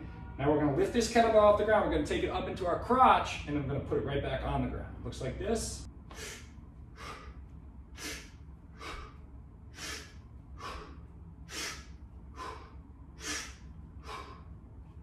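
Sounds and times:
man's short sharp breaths: 6.1s - 7.4s, 8.0s - 9.2s, 9.8s - 14.6s.

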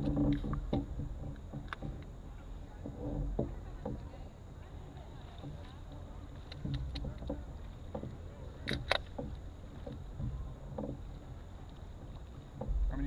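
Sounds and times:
knocks on canoe: 0.0s - 4.3s, 6.6s - 11.4s, 12.1s - 13.0s
low rumble: 0.0s - 13.0s
paddle in water: 0.0s - 13.0s.

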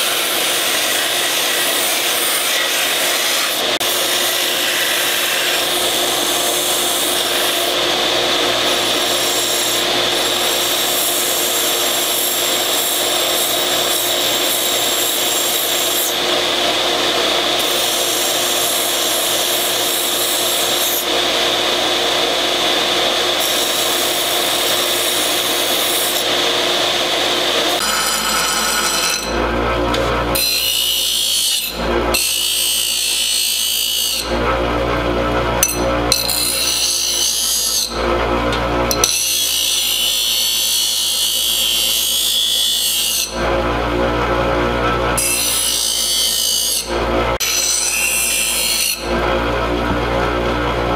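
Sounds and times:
belt sander grinding steel: 0.0s - 50.9s.

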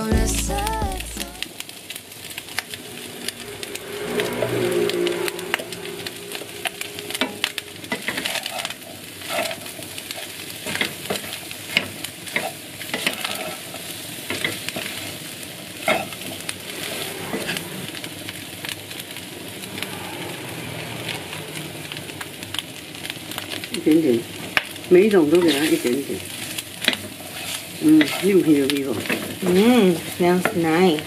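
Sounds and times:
food sizzling in a frying pan: 0.0s - 31.0s.

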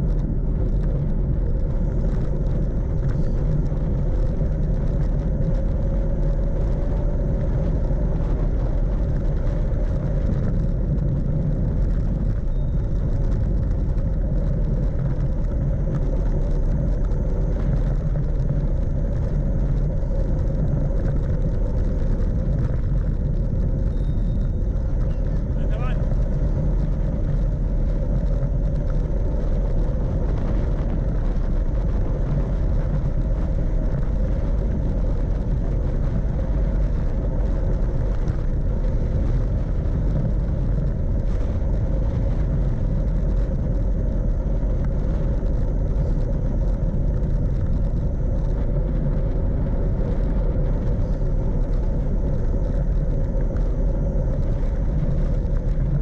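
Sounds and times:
bike tyres rolling on asphalt: 0.0s - 56.0s
wind rumble on microphone: 0.0s - 56.0s.

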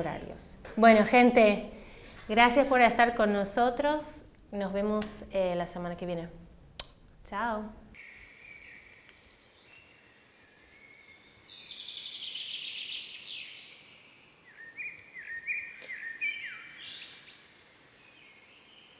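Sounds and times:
bird trill: 8.0s - 17.6s
short bird chirps: 14.5s - 17.6s.

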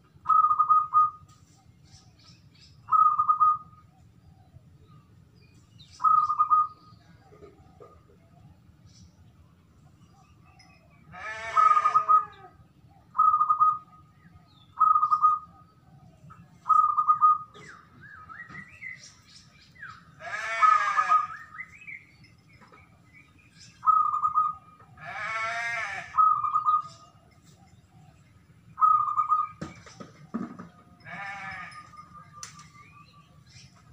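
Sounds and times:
small birds chirping: 0.0s - 33.9s
dove cooing: 0.3s - 1.2s, 2.9s - 4.6s, 6.0s - 8.4s, 11.2s - 14.0s, 14.8s - 18.6s, 23.8s - 27.1s, 28.8s - 29.8s.

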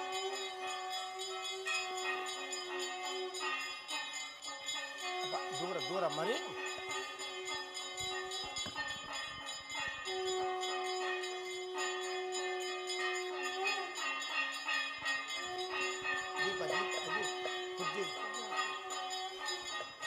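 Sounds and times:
bells rung rapidly: 0.0s - 20.0s.

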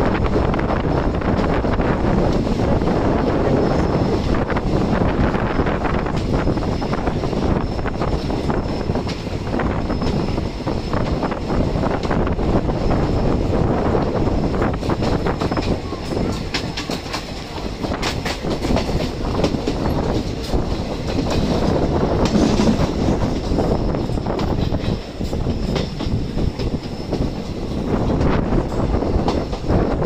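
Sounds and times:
train wheels rumbling on track: 0.0s - 30.0s
wheels clicking over rail joints: 14.7s - 30.0s.

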